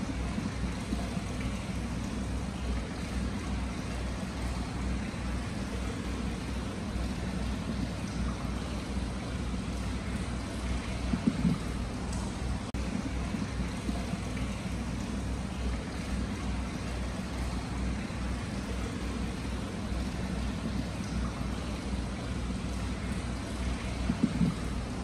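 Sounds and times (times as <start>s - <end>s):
water spilling into bath: 0.0s - 25.0s.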